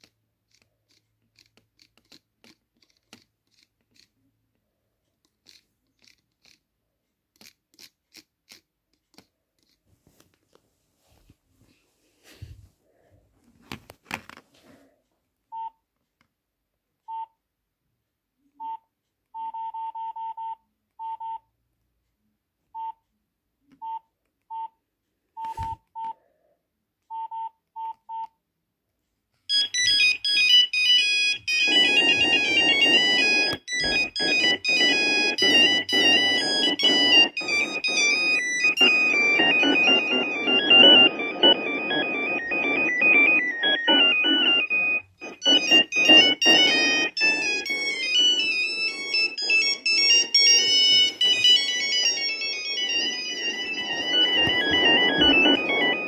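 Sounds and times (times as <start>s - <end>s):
phone keypad beeps: 19.4s - 21.5s, 22.8s - 23.0s, 23.8s - 24.8s, 29.5s - 56.0s
polyphonic ringtone melody: 29.5s - 56.0s.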